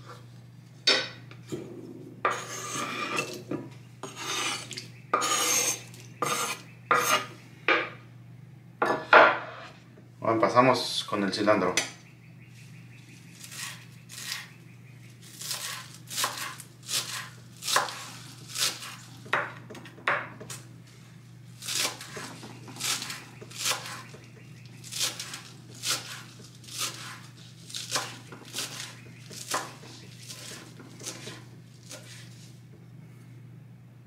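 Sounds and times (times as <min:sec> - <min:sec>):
knife chopping on wooden board: 0:04.0 - 0:07.9, 0:15.4 - 0:20.4, 0:21.7 - 0:24.2, 0:24.9 - 0:32.2.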